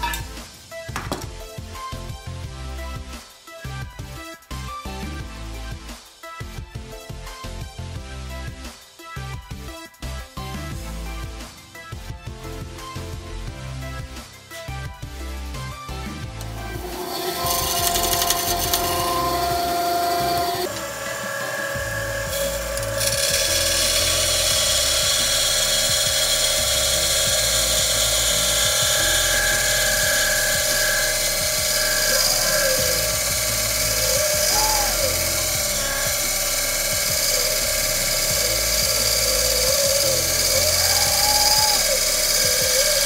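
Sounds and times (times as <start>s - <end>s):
band saw cutting metal: 16.4s - 43.0s.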